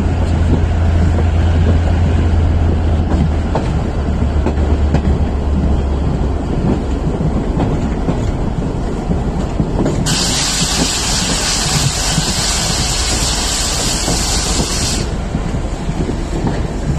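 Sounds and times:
train wheels rumbling clickety-clack: 0.0s - 16.9s
loud hiss: 10.1s - 15.2s.

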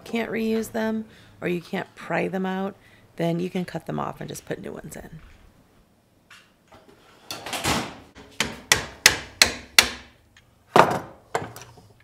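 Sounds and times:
hammer striking wood: 8.2s - 10.2s.

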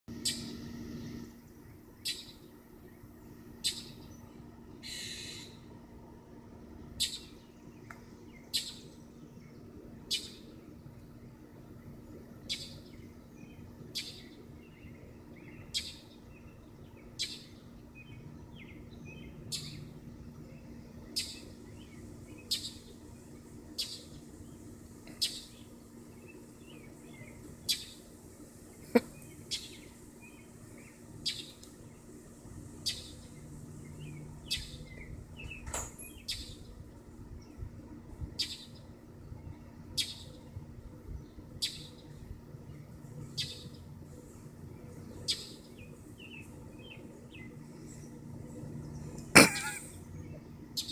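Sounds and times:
blue jay scolding calls: 4.8s - 5.6s.

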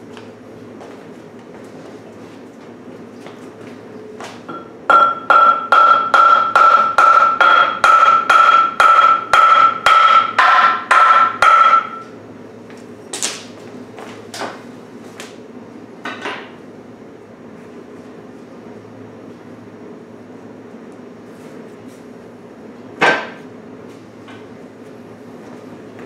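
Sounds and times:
hammer striking metal: 4.5s - 12.1s.

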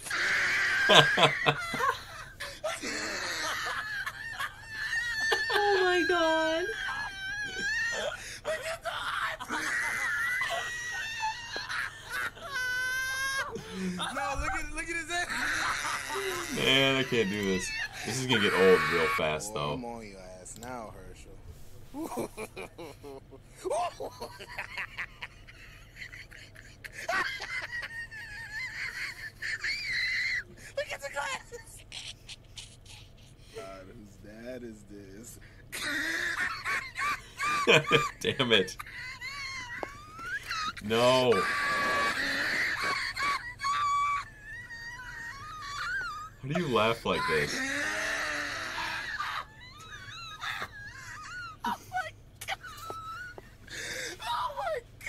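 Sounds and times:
hysterical high-pitched laughter: 0.0s - 19.8s, 21.9s - 33.4s, 35.7s - 55.0s
breathy gasps: 53.7s - 54.2s.

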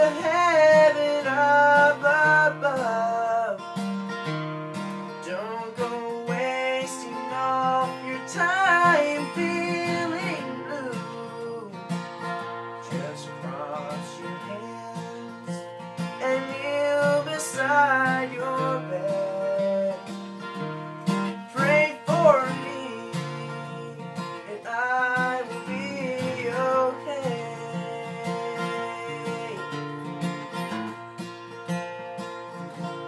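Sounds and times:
man singing: 0.0s - 3.7s, 5.1s - 20.4s, 21.2s - 30.6s
acoustic guitar: 0.0s - 33.0s.

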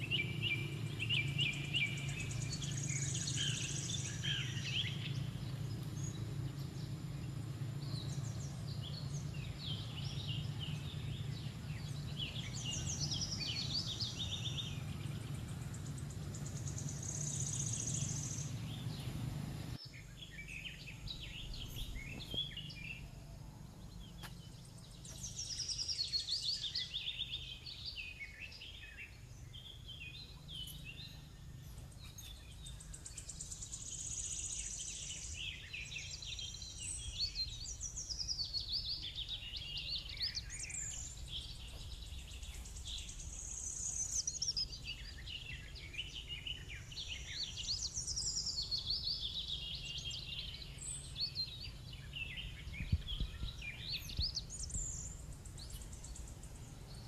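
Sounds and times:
steady low rumble: 0.0s - 25.9s, 50.2s - 57.0s
bird and insect chirps: 0.0s - 57.0s.

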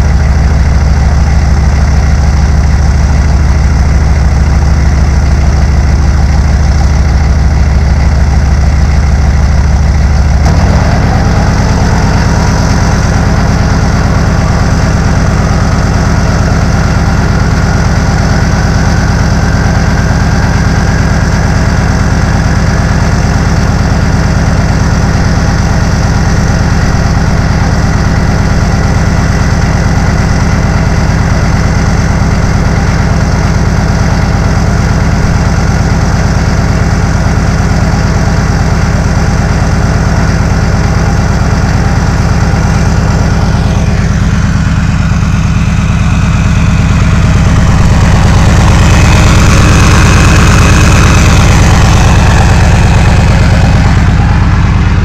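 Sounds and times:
diesel engine idling with clatter: 0.0s - 55.0s
faint rising whine: 9.3s - 15.5s, 43.3s - 55.0s.

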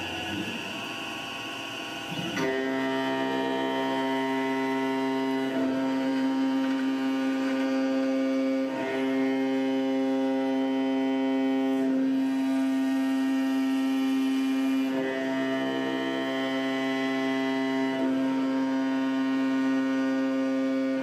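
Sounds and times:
mill cutting aluminium hum: 0.0s - 21.0s.

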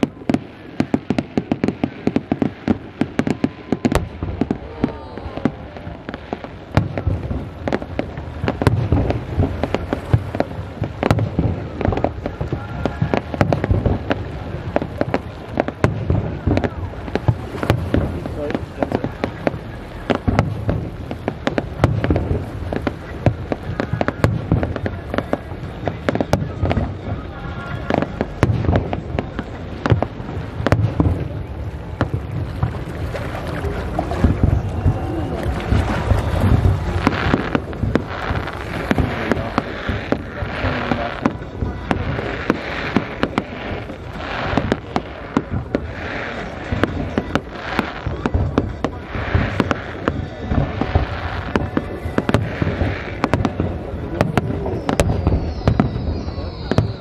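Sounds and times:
fireworks bangs and pops: 0.0s - 57.0s.

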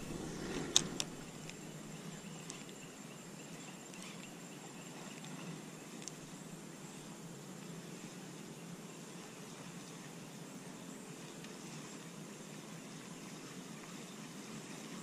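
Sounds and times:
reel ticking: 0.0s - 2.8s
faint insect buzz: 0.0s - 15.0s.

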